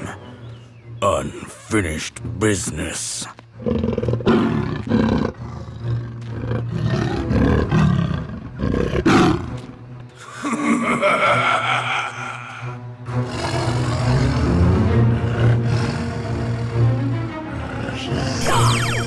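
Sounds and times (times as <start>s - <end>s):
cartoon voices roaring and growling: 10.5s - 16.8s, 17.5s - 18.8s.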